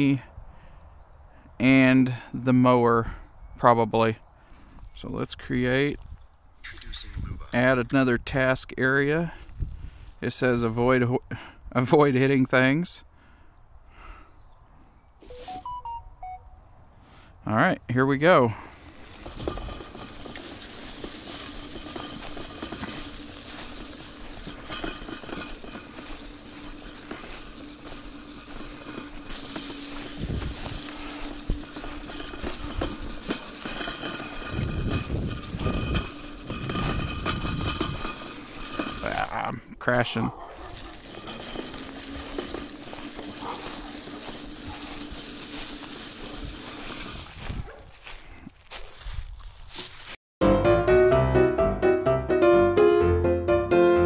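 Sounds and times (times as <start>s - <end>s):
dry leaves crackling: 18.5s - 39.4s, 40.0s - 50.2s.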